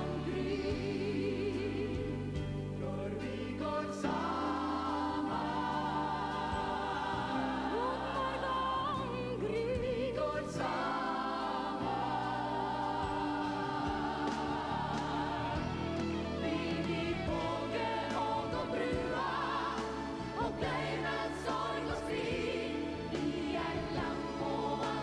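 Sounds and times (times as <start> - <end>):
backing singers: 0.0 - 25.0
woman singing lead vocal: 6.6 - 11.8.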